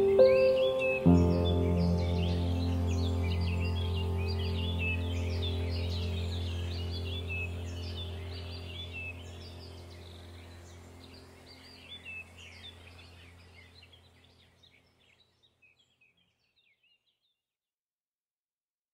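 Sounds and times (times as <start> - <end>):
low steady hum: 0.0 - 15.0
songbirds chirping: 0.0 - 17.4.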